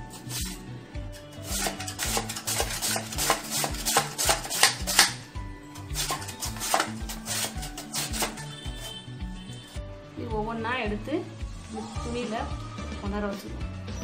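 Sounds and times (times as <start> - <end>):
background music with low beat: 0.0 - 14.0
potato scraping on grater: 1.4 - 5.1, 5.9 - 9.0.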